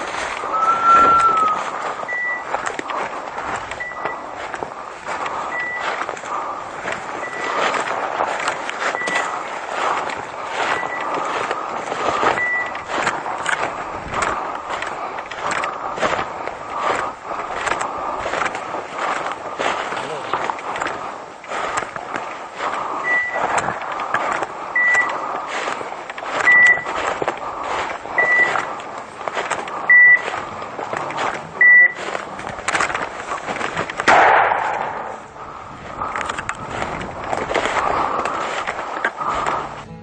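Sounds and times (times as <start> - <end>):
twigs crackling: 0.0 - 39.9
footsteps through dry leaves: 0.0 - 40.0
beeper collar beeping: 0.5 - 2.5, 3.8 - 4.4, 5.5 - 6.0, 7.2 - 7.7, 8.9 - 9.3, 10.6 - 11.2, 12.3 - 12.9, 23.0 - 23.5, 24.8 - 25.2, 26.4 - 26.9, 28.2 - 28.6, 29.9 - 30.2, 31.6 - 32.0.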